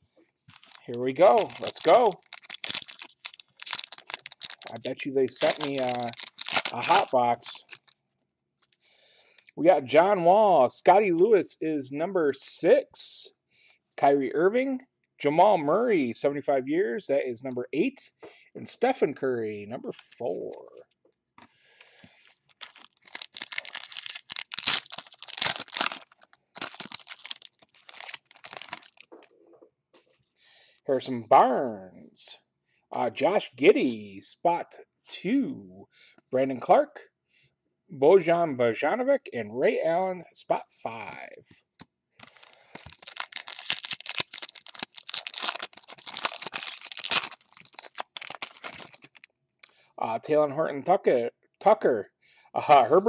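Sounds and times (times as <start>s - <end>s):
foil wrapper crinkling and tearing: 0.5s - 8.0s, 22.4s - 29.1s, 42.2s - 49.3s.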